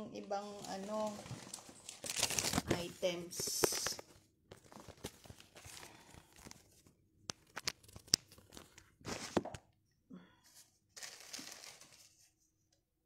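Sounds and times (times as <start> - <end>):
plastic bags crinkling: 0.4 - 9.2, 11.0 - 12.2.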